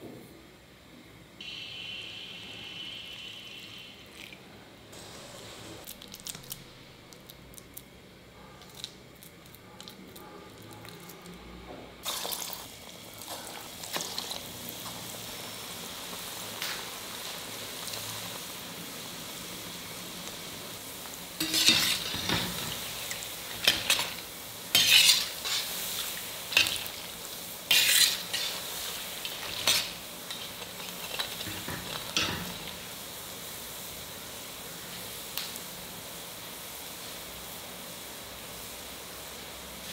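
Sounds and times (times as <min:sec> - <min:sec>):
fritters sizzling in hot oil: 0:12.0 - 0:39.9
skimmer scraping a steel pan: 0:21.4 - 0:22.8, 0:23.6 - 0:25.7, 0:27.7 - 0:28.6.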